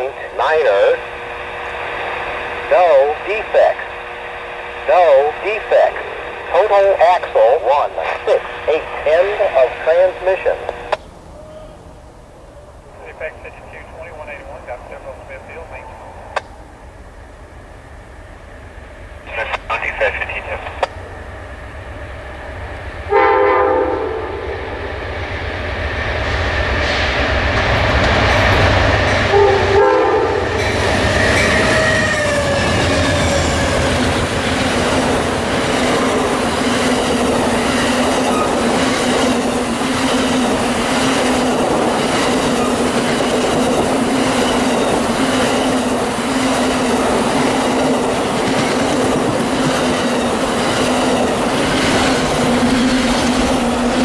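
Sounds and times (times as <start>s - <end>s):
train hum: 0.0s - 54.0s
train rumbling past: 0.0s - 54.0s
train horn blasts: 23.1s - 24.7s, 29.3s - 30.7s.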